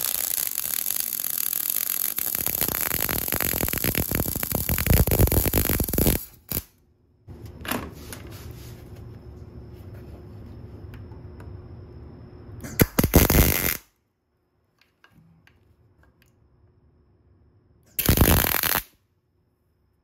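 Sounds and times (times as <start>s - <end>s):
crackling welding arc: 0.0s - 6.8s, 12.7s - 13.9s, 18.0s - 19.0s
faint background hum: 0.0s - 20.0s.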